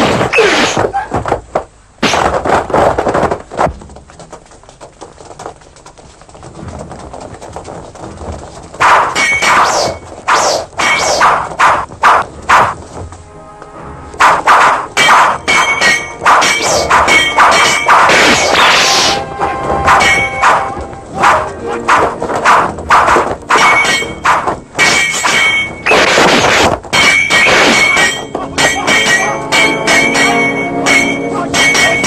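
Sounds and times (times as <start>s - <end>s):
fight whacks and blows: 0.0s - 1.4s, 2.0s - 3.8s, 8.8s - 12.8s, 14.2s - 19.2s, 19.8s - 32.0s
ringing metallic clangs: 8.9s - 10.1s, 14.3s - 18.8s, 19.8s - 20.8s, 23.5s - 26.1s, 26.9s - 32.0s
background music: 12.3s - 26.0s, 27.0s - 32.0s.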